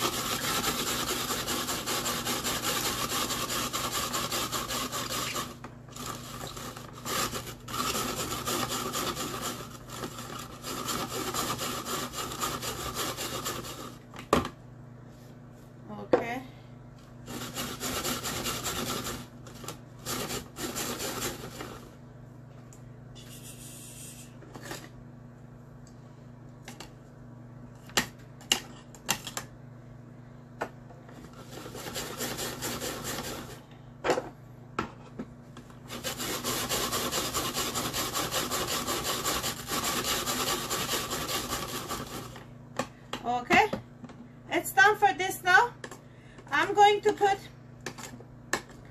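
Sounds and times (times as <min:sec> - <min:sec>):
rotary grater rasping: 0:00.0 - 0:14.0, 0:17.3 - 0:19.3, 0:20.0 - 0:21.9, 0:31.4 - 0:33.6, 0:35.9 - 0:42.4.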